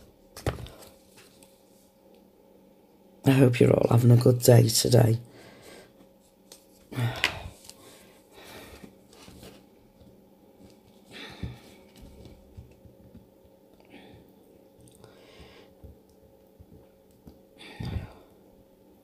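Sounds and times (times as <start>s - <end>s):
paper pages rustling: 0.3s - 1.8s, 7.5s - 11.0s.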